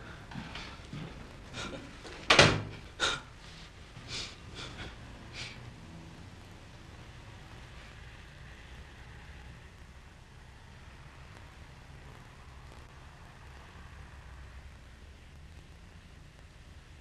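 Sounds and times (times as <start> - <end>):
steady faint hum: 0.0 - 17.0
door shutting knock: 2.3 - 2.8.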